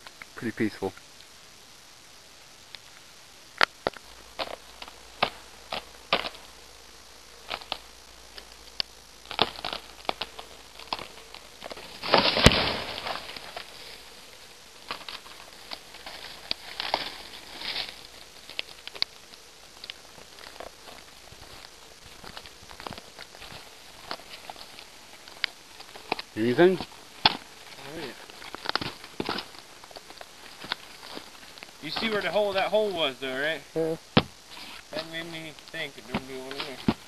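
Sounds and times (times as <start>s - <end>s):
rustling brush and twig snap: 0.0s - 33.0s, 34.0s - 37.0s
footsteps crunching on leaves: 9.2s - 32.6s.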